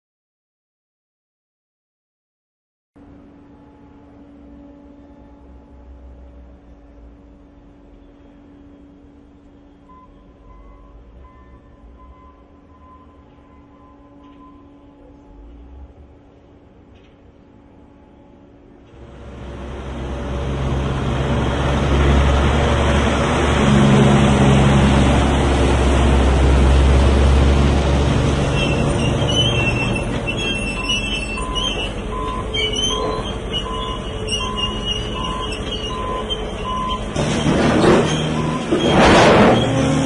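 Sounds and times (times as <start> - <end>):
heavy machinery engine rumble: 18.9 - 40.0
backup alarm beeping: 30.0 - 37.2, 38.2 - 38.8.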